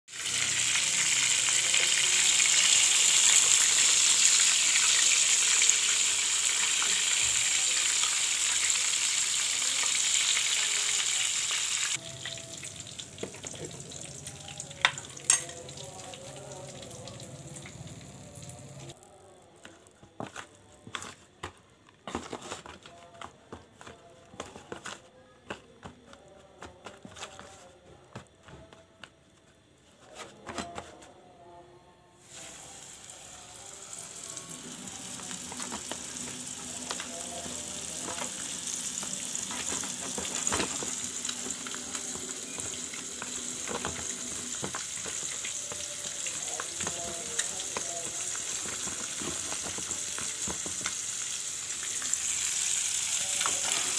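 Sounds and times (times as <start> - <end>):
chicken deep-frying in oil: 0.1 - 19.2, 32.2 - 53.9.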